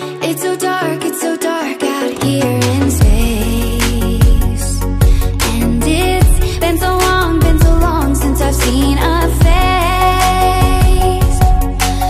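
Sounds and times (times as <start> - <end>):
deep kick drum: 3.0 - 3.4, 4.2 - 5.4, 6.2 - 6.6, 7.4 - 8.0, 9.4 - 9.9, 10.6 - 11.8.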